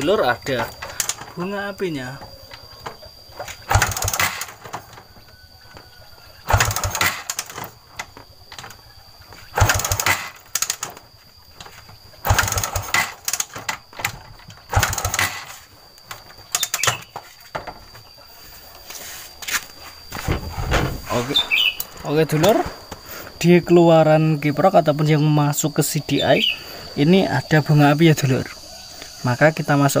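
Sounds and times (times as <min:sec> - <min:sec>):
motorcycle engine kick-start cranking: 0:00.0 - 0:05.4, 0:06.3 - 0:17.2.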